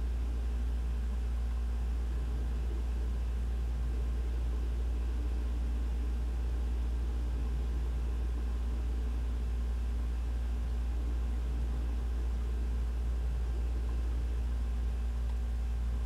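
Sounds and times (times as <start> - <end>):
faint even hum: 0.0 - 16.0
ventilation rumble: 0.0 - 16.0.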